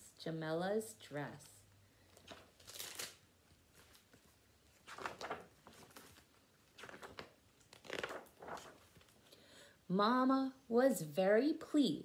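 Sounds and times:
book pages turning: 0:02.0 - 0:09.3.

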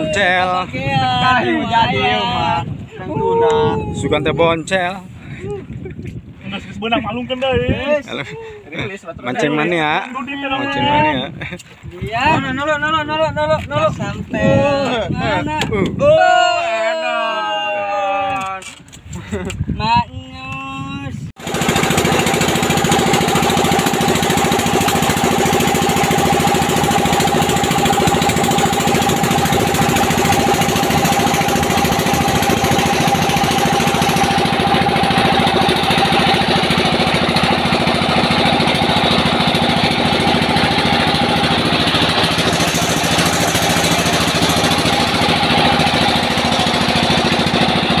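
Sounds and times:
boat engine droning: 0:21.4 - 0:48.0.

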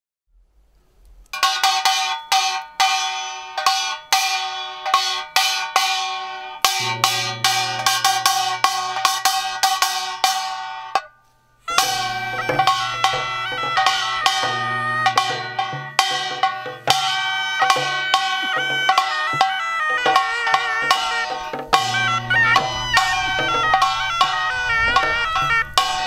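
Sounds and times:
sharp ringing struck notes: 0:01.4 - 0:26.0
steady low held tone: 0:06.5 - 0:26.0.

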